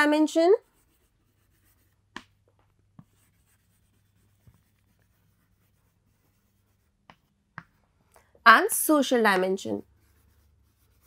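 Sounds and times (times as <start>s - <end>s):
chalk tapping on a chalkboard: 0.8s - 7.8s, 9.3s - 11.0s.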